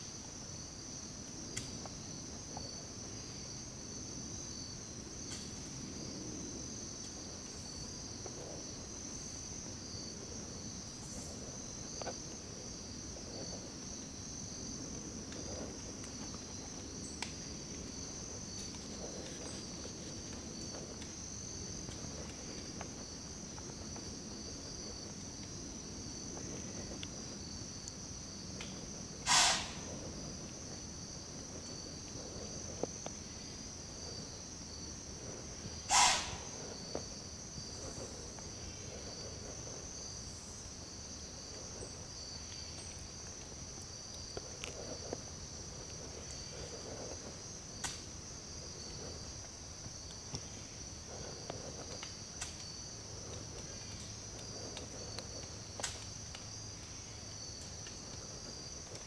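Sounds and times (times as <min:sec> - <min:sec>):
crickets chirping: 0:00.0 - 0:59.0
short hissing burst: 0:29.3 - 0:29.8, 0:35.9 - 0:36.4.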